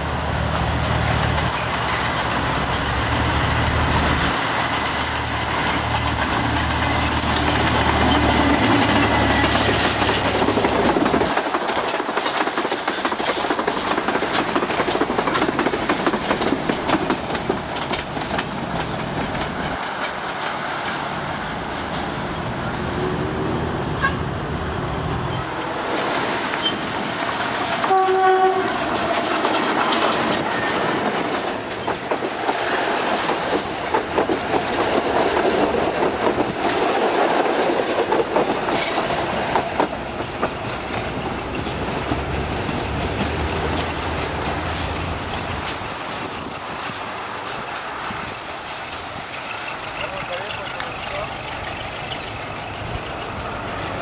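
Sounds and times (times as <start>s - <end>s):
low train rumble: 0.0s - 54.0s
train wheels clattering over rail joints: 0.6s - 22.5s, 26.1s - 54.0s
train horn blast: 27.7s - 29.0s.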